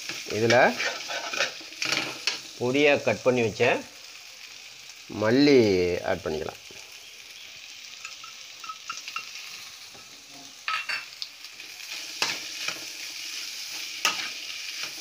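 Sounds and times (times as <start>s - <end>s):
food sizzling in a pan: 0.0s - 15.0s
metal spatula scraping a pan: 0.1s - 2.5s, 11.8s - 15.0s.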